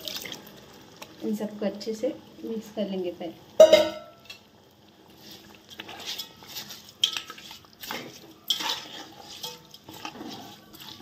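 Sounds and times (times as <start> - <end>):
metal spoon scraping a pot: 5.2 - 11.0.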